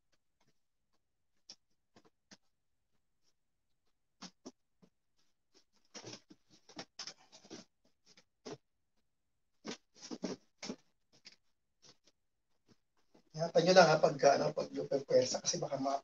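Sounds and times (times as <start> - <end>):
fabric rustling and scraping: 9.6 - 13.4.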